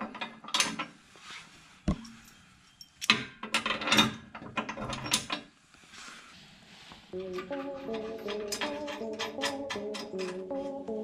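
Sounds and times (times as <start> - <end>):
metallic clicks and knocks: 7.2 - 10.5.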